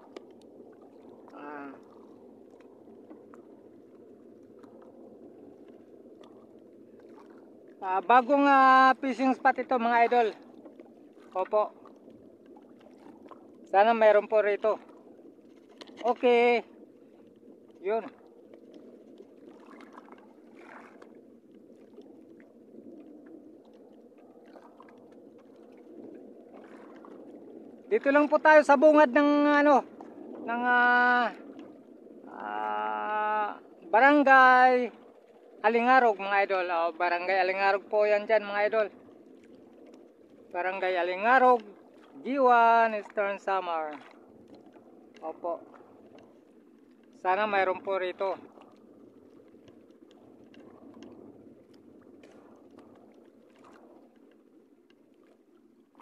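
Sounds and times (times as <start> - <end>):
light ticks: 0.0 - 0.5, 41.4 - 41.8, 43.9 - 45.3, 46.0 - 47.2, 48.2 - 55.4
sea water washing around boat: 0.0 - 56.0.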